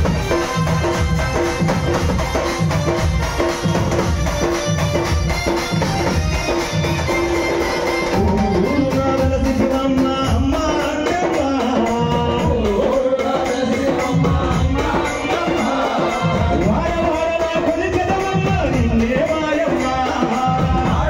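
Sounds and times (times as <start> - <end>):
electronic keyboard melody: 0.0 - 10.9
steady drum beat: 0.0 - 21.0.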